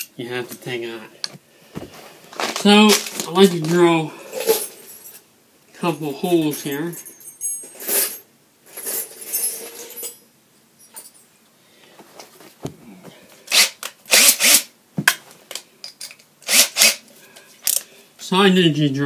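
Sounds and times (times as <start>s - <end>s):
rustling and handling noise: 0.4s - 5.3s, 6.4s - 13.6s.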